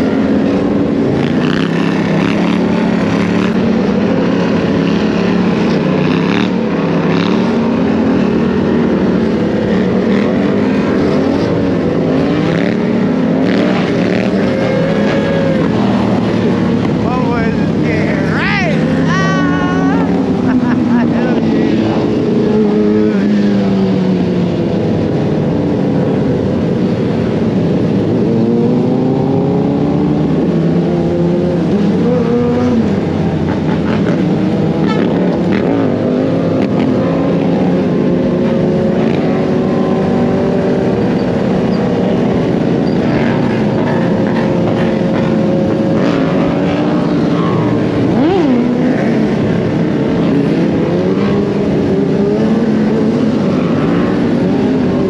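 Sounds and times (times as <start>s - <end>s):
motorcycle engines revving: 0.0s - 55.0s.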